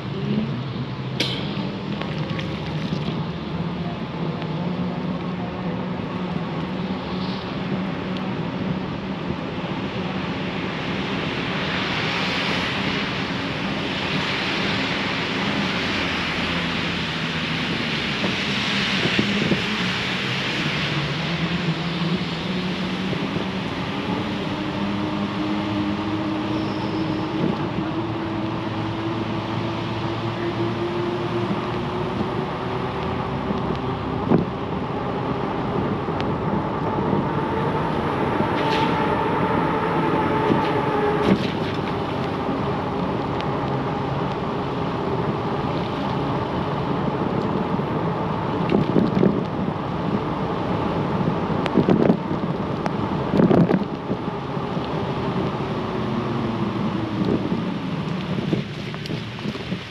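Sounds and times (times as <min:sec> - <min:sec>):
tyre and wind noise: 0:00.0 - 0:59.9
electric hub motor whine: 0:21.1 - 0:58.6.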